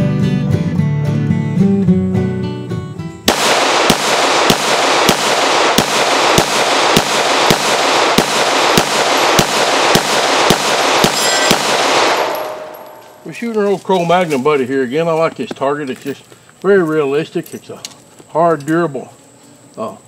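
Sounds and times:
pistol shots echoing: 3.3 - 13.3
high metallic ring: 11.1 - 11.6, 12.3 - 13.3.

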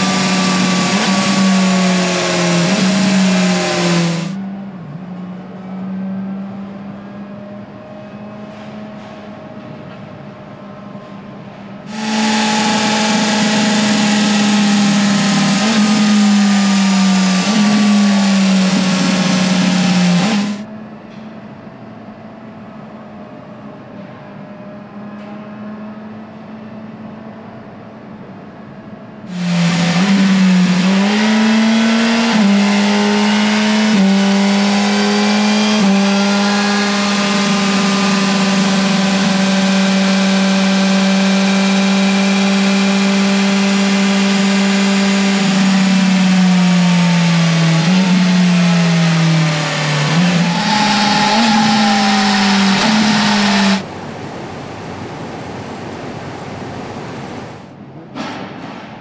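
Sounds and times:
motorcycle engine revving: 0.0 - 7.9, 11.9 - 20.7, 29.3 - 53.9
low hum: 11.9 - 20.7.

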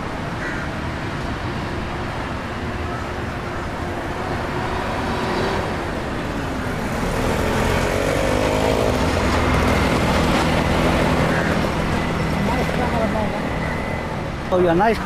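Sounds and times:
city street traffic: 0.0 - 15.0
vehicle engine running close by: 3.8 - 13.4.

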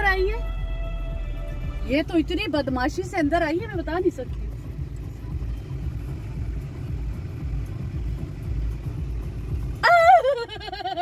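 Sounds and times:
car idling inside cabin: 0.0 - 11.0.

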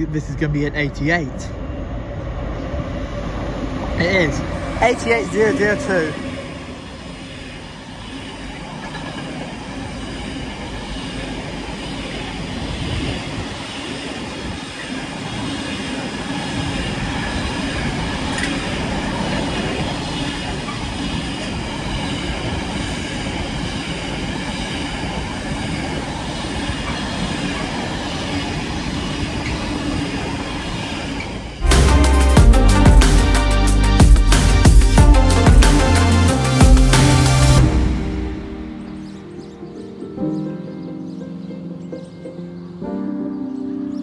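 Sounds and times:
steel wheels on rail: 0.0 - 32.2.

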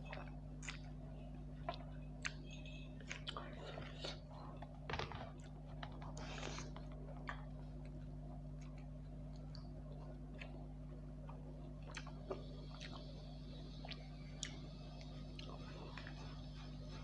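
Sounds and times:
chewing and wet mouth clicks: 0.0 - 1.0, 1.6 - 4.4, 5.4 - 13.1, 13.7 - 16.2
steady low hum: 0.0 - 17.0.

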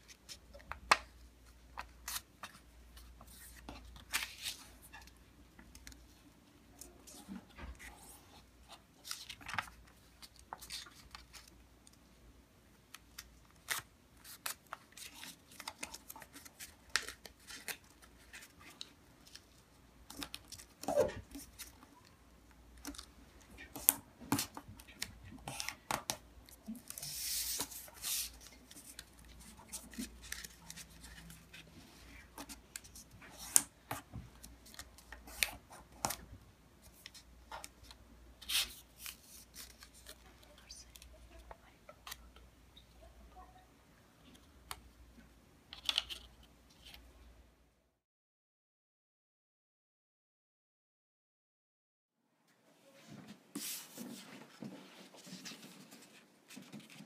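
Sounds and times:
paper rustling and crackling: 23.7 - 36.2, 53.5 - 57.0.

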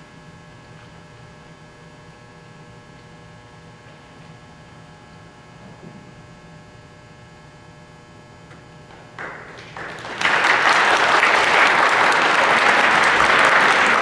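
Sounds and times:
faint steady hum: 0.0 - 14.0
crowd applause: 8.9 - 14.0.

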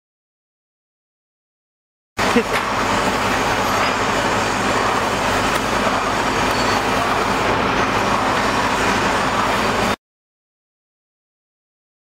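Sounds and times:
air compressor running: 2.2 - 10.0.

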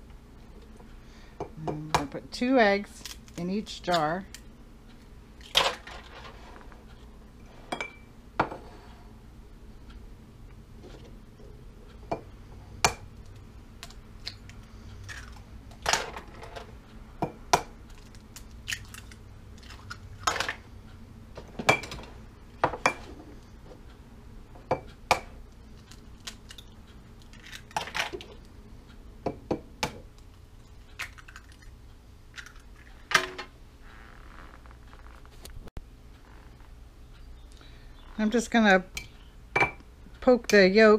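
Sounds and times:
eggs cracking against glass jars: 12.9 - 15.9, 17.8 - 20.6, 25.6 - 28.5, 30.2 - 33.1.

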